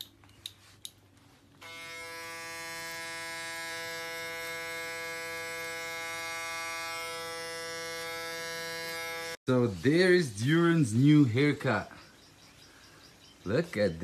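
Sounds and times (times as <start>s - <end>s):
electric hair clippers buzzing: 1.6s - 9.4s.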